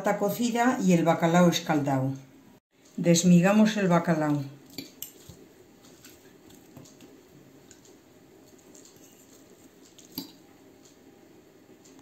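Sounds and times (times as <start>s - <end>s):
cutlery scraping a ceramic plate: 8.9s - 9.5s.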